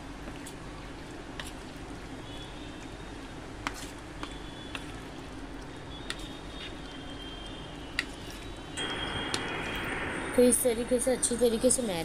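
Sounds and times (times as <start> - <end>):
steady low hum: 7.2 - 12.0.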